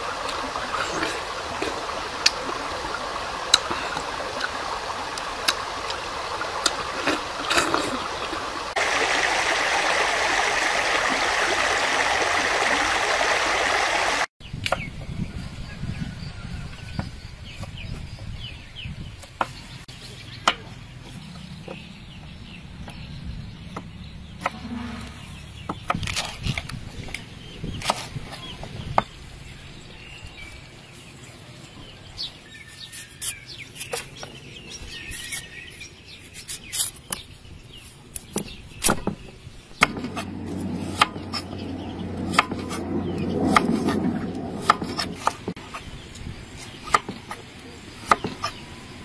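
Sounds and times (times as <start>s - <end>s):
birds chirping: 0.0s - 15.0s, 16.9s - 26.2s, 26.9s - 49.0s
low rumbling noise: 39.8s - 46.4s.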